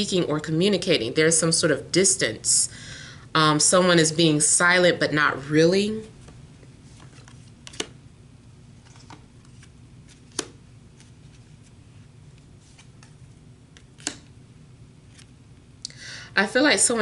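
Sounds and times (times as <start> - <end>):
cards clicking and tapping: 7.0 - 8.0, 8.8 - 11.1, 12.7 - 14.3.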